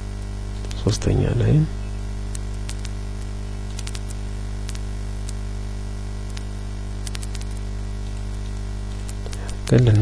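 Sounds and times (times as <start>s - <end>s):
mains hum and static: 0.0s - 10.0s
computer mouse clicks: 0.6s - 0.8s, 2.3s - 5.4s, 6.3s - 10.0s.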